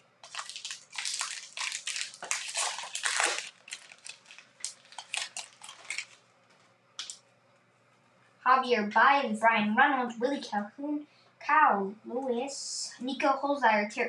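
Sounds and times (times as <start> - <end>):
wrapper tearing and crinkling: 0.2 - 6.2, 7.0 - 7.2.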